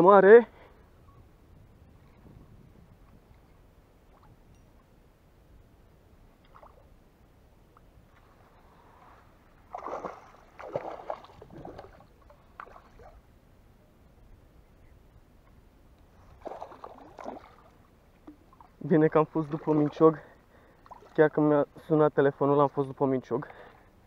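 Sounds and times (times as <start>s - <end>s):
fish splashing in water: 9.7s - 13.2s, 16.4s - 17.8s.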